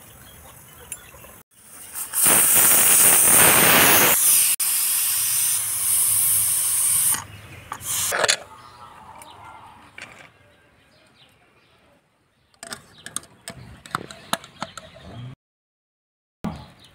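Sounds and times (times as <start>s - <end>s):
pressure cooker steam hissing: 1.6s - 8.1s.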